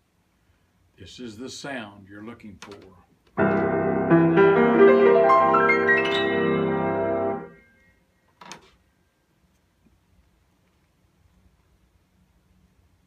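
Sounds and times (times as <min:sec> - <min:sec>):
grand piano chords: 0:03.4 - 0:07.8.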